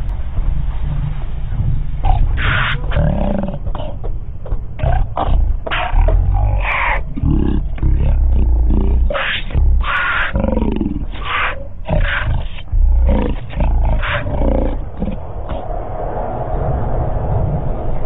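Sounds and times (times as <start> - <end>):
steady background hum: 0.0 - 18.0
lions giving harsh calls: 2.0 - 4.1, 4.8 - 15.2.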